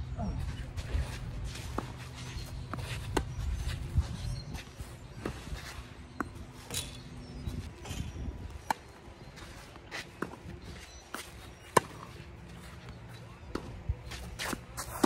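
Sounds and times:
footsteps shuffling on clay: 0:00.1 - 0:07.7, 0:08.6 - 0:15.0
tennis ball bouncing: 0:11.1 - 0:12.2.

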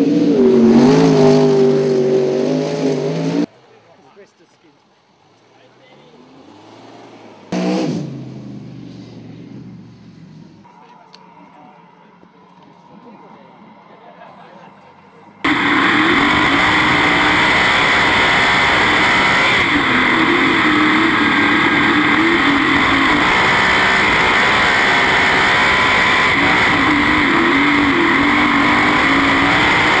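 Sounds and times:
race car engine running hard: 0:09.3 - 0:30.0.

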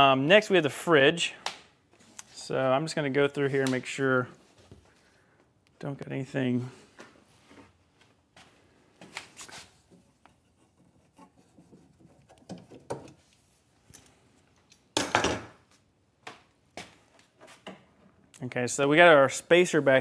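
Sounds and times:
wooden knocks and rubbing: 0:09.9 - 0:13.3.

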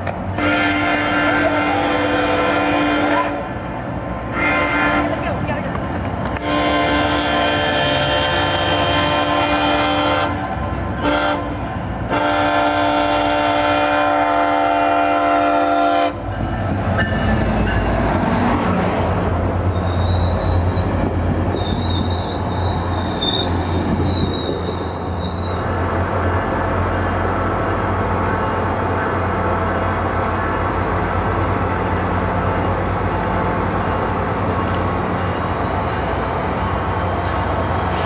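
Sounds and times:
locomotive horn blasts: 0:00.4 - 0:03.6, 0:04.3 - 0:05.3, 0:06.4 - 0:16.3
steel wheel squeal: 0:18.6 - 0:25.8, 0:32.4 - 0:33.0, 0:33.9 - 0:38.0.

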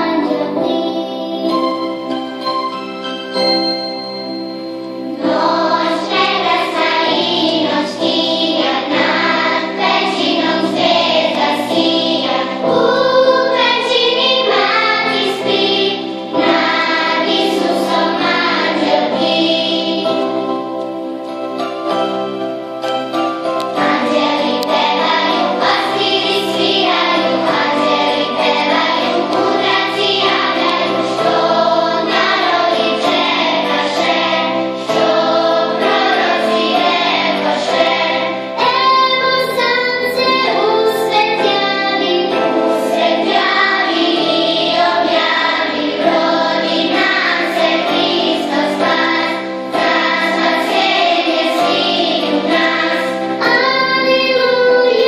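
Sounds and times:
choir of children and women singing: 0:00.0 - 0:01.5, 0:05.1 - 0:20.5, 0:23.7 - 0:55.0.

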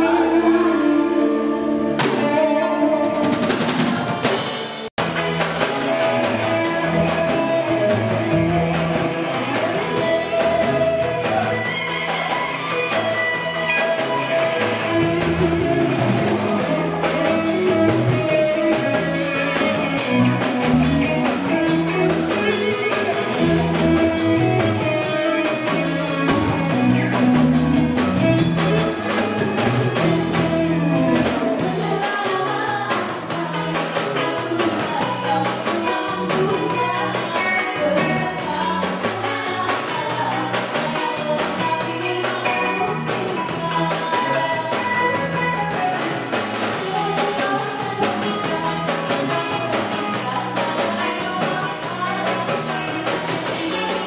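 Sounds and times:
live rock band playing: 0:00.0 - 0:54.0.

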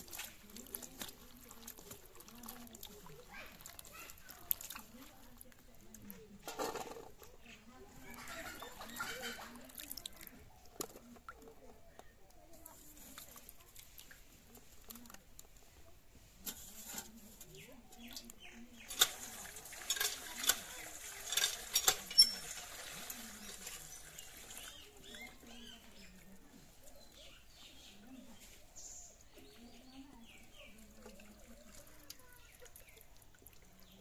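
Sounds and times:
hands sloshing water in bowl: 0:00.0 - 0:06.0, 0:07.1 - 0:11.4, 0:18.1 - 0:27.2
water gushing into steel bowl: 0:00.0 - 0:06.5, 0:07.1 - 0:11.4, 0:18.3 - 0:27.6, 0:29.5 - 0:34.0.

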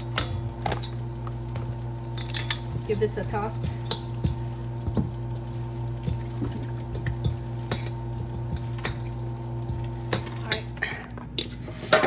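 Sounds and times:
low hum: 0:00.0 - 0:12.0
spatulas scraping metal bowl: 0:02.2 - 0:10.8.

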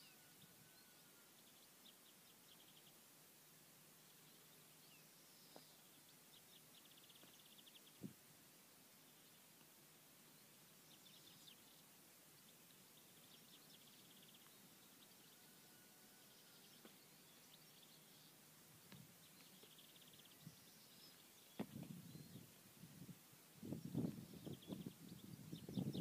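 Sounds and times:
distant birdsong: 0:00.0 - 0:26.0.

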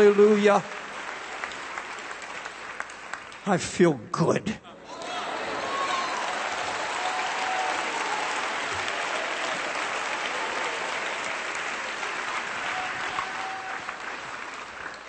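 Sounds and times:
congregation applauding: 0:00.0 - 0:03.5, 0:04.9 - 0:15.0
shouts of praise: 0:04.8 - 0:11.0, 0:12.4 - 0:14.0.

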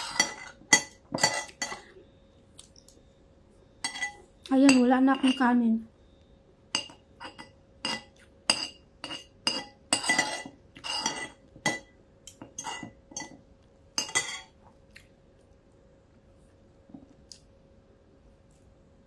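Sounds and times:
cutlery clinking and scraping plate: 0:00.0 - 0:01.9, 0:03.8 - 0:05.5, 0:06.8 - 0:13.4, 0:14.0 - 0:14.6.

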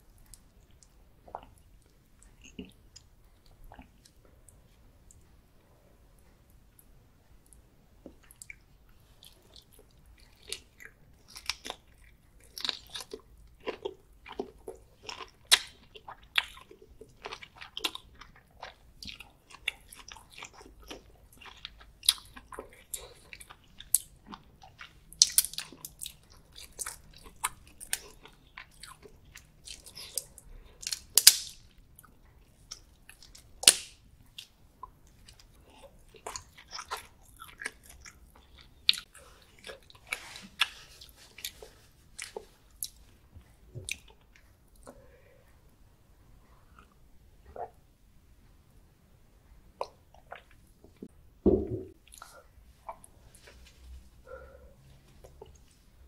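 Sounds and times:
close chewing mouth clicks and smacks: 0:00.1 - 0:05.2, 0:07.4 - 0:33.5, 0:34.3 - 0:43.2.

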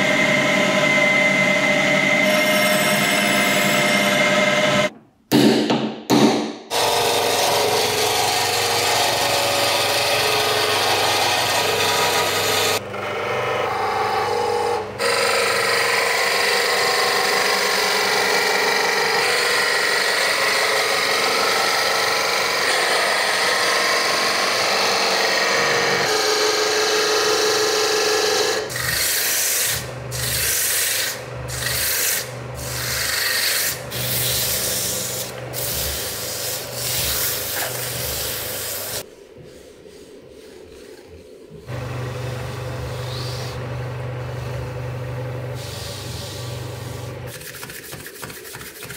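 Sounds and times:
lathe motor hum: 0:41.6 - 0:47.3
sandpaper on spinning wood: 0:47.3 - 0:48.9.

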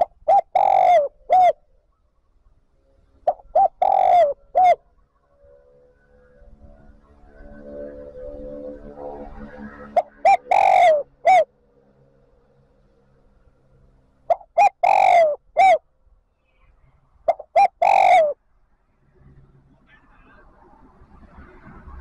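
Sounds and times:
dove cooing: 0:00.0 - 0:01.6, 0:03.3 - 0:04.8, 0:09.9 - 0:11.5, 0:14.3 - 0:15.8, 0:17.3 - 0:18.4.

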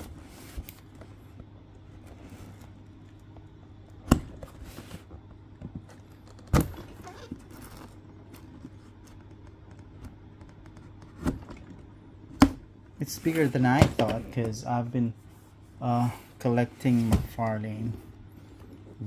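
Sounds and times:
cardboard rustling and scraping: 0:00.0 - 0:01.3, 0:04.3 - 0:05.2, 0:06.6 - 0:09.2, 0:13.0 - 0:14.6.

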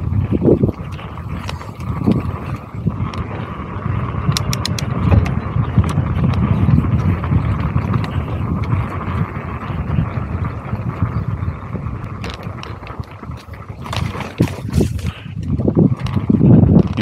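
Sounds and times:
bike rattling clicks: 0:00.0 - 0:17.0
bike tyres rumbling over dirt: 0:00.0 - 0:17.0
wind on microphone: 0:00.0 - 0:17.0.

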